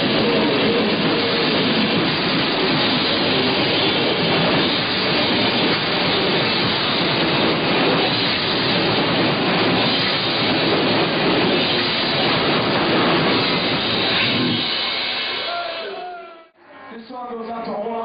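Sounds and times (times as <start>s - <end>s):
metal band playing live: 9.7s - 16.0s.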